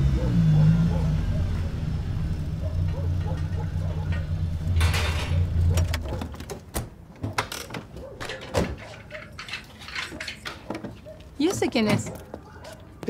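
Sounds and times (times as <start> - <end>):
door clicks and knocks: 3.3 - 8.9.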